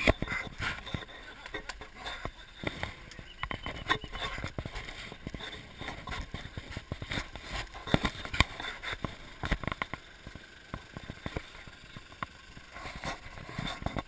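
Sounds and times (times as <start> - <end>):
footsteps on muddy track: 0.0 - 14.0.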